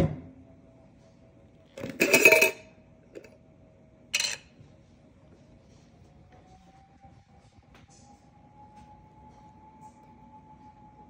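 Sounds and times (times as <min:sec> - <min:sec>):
metal lid twisting off: 0:01.8 - 0:02.6, 0:04.2 - 0:04.4
glass clink: 0:02.0 - 0:02.7.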